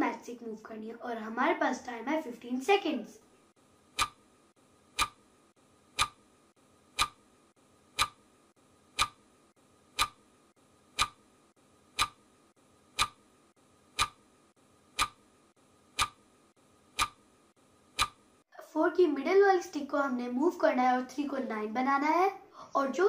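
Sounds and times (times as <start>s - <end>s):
clock ticking: 3.9s - 4.3s, 4.9s - 8.3s, 8.9s - 11.3s, 11.9s - 12.3s, 12.9s - 13.3s, 13.9s - 14.3s, 14.9s - 15.3s, 15.9s - 16.3s, 16.9s - 17.2s, 17.9s - 18.3s.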